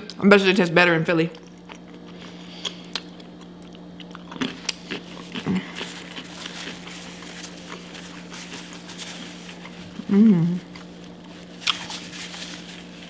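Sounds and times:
steady low hum: 0:00.0 - 0:13.0
chewing crunchy pickle: 0:01.3 - 0:13.0
paper napkin rustling: 0:05.8 - 0:13.0.

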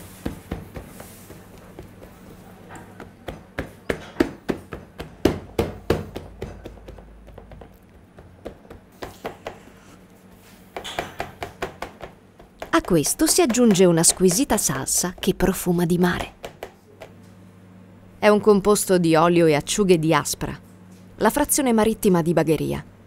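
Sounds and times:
hands patting dough in metal tin: 0:00.1 - 0:09.3.

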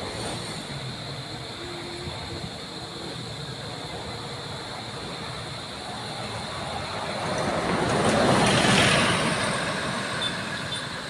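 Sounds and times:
vehicle passing by: 0:05.9 - 0:11.0.

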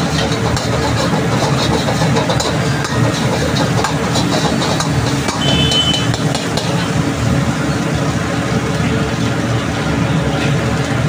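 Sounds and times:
metal ladle scraping a wok: 0:00.0 - 0:07.0
gas burner roaring: 0:00.0 - 0:11.0.

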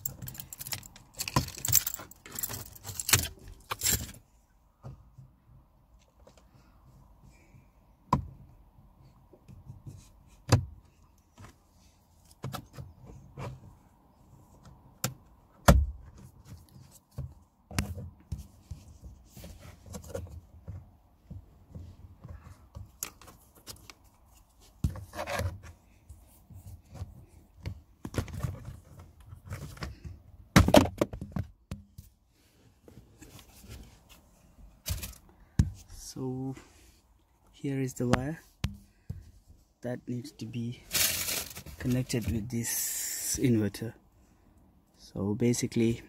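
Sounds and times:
plastic scraping and rustling: 0:40.8 - 0:42.6.

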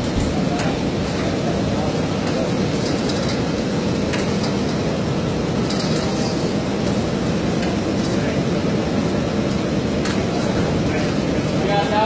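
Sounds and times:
milking machinery rumbling: 0:00.0 - 0:12.0
faint clicks and clanks: 0:02.1 - 0:04.9, 0:05.6 - 0:08.4, 0:09.4 - 0:11.4.

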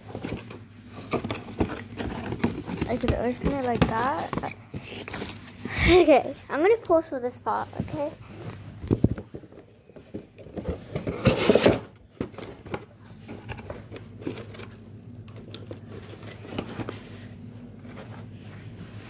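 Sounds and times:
packaging rustling and crinkling: 0:00.0 - 0:06.2.

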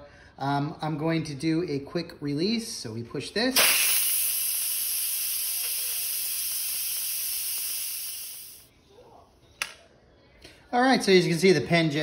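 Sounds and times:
steam valve hissing: 0:03.6 - 0:08.7.

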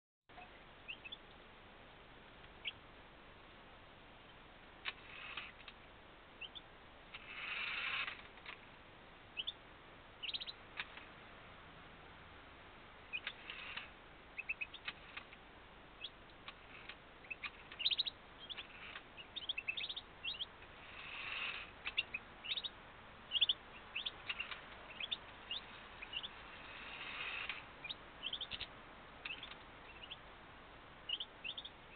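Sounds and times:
finches chirping: 0:00.4 - 0:01.2, 0:06.4 - 0:08.5, 0:09.4 - 0:09.6, 0:10.2 - 0:10.6, 0:13.1 - 0:15.3, 0:16.0 - 0:30.3, 0:31.0 - 0:31.9.

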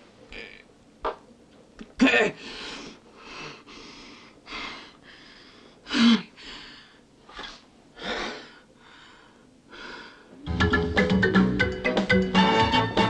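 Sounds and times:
lively music: 0:10.5 - 0:13.0.

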